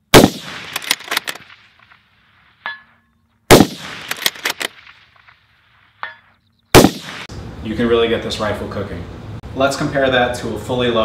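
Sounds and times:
rifle shot with echoes: 0.1s - 2.0s, 3.5s - 5.4s, 6.7s - 7.3s
metallic ring of steel target: 2.6s - 3.2s, 6.0s - 6.4s.

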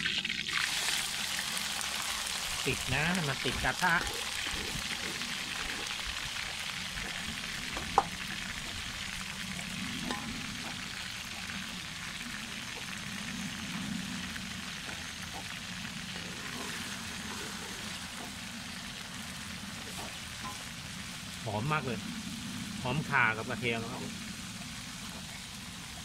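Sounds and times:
food sizzling in hot oil: 0.0s - 26.0s
metal spatula stirring in wok: 3.3s - 11.6s, 14.8s - 21.1s.

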